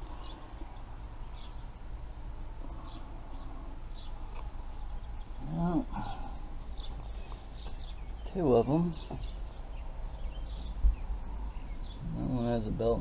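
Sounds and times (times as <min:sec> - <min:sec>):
low background rumble: 0:00.0 - 0:13.0
man's low vocal sound: 0:05.4 - 0:06.7.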